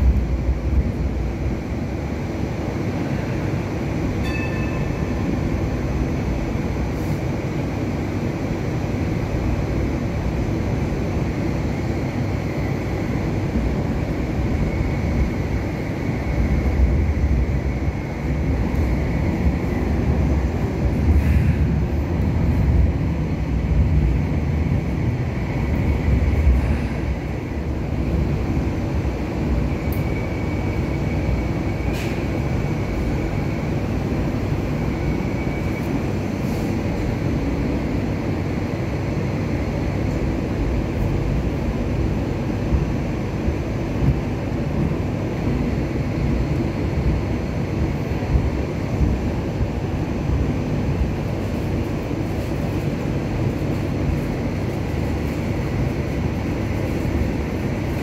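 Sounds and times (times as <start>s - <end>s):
tram wheels rumbling: 0.0s - 58.0s
faint high whine: 2.1s - 6.6s, 22.2s - 37.0s.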